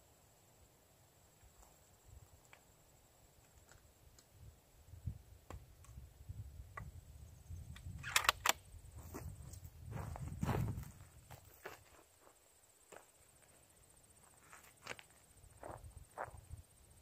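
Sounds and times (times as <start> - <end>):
metallic clicks of rifle bolt: 7.8 - 8.6.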